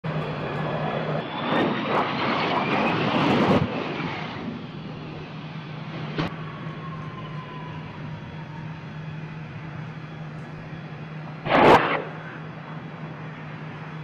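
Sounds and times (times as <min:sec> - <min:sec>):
jet engine whining: 0:00.0 - 0:14.0
sharp crack: 0:11.4 - 0:12.4.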